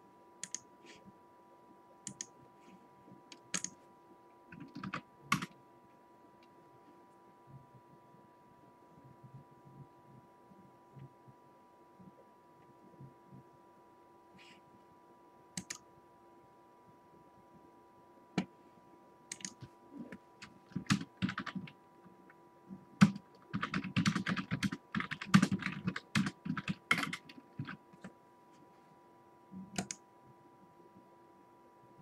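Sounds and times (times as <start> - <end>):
faint electrical hum: 0.0 - 32.0
typing on a keyboard: 0.4 - 0.6, 3.3 - 3.8, 4.5 - 5.6, 15.6 - 15.8, 19.3 - 19.7, 20.4 - 21.8, 23.0 - 28.1, 29.8 - 30.0.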